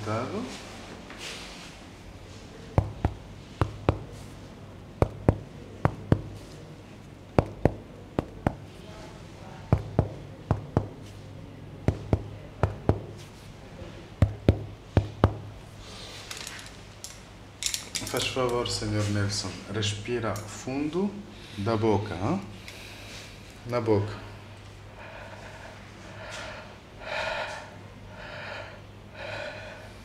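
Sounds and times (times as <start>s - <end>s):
low steady hum: 0.0s - 30.0s
fingers tapping on a back: 2.8s - 4.2s, 5.0s - 6.5s, 7.4s - 8.7s, 9.7s - 11.1s, 11.8s - 13.2s, 14.2s - 15.5s.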